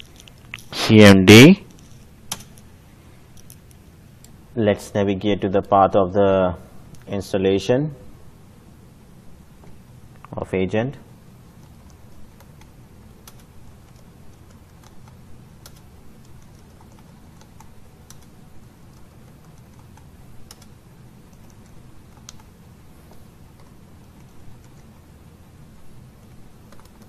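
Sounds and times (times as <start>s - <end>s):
steady low hum: 0.0s - 27.0s
typing on computer keyboard: 2.3s - 2.6s, 11.6s - 22.5s, 23.1s - 24.9s, 26.2s - 27.0s.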